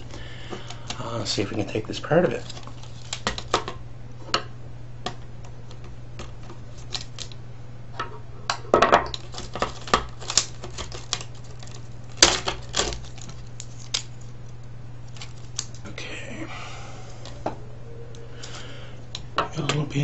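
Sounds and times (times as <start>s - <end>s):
steady low hum: 0.0s - 20.0s
plastic and metal parts clicking: 9.1s - 14.1s.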